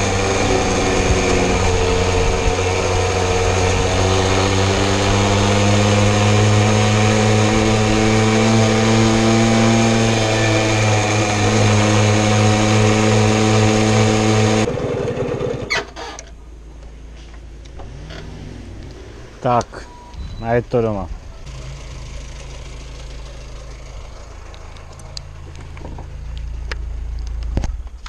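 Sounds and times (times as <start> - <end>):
moped two-stroke engine running: 0.0 - 16.2, 21.4 - 24.6.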